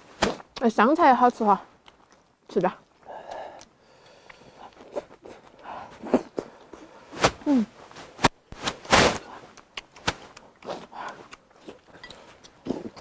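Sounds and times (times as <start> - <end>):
chewing: 1.8 - 7.0, 9.3 - 13.0.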